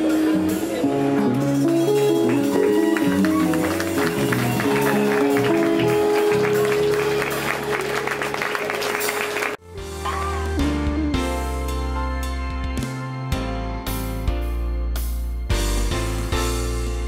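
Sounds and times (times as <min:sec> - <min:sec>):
electric guitar: 0:00.0 - 0:13.5
bass guitar: 0:00.0 - 0:17.0
drums: 0:00.0 - 0:17.0.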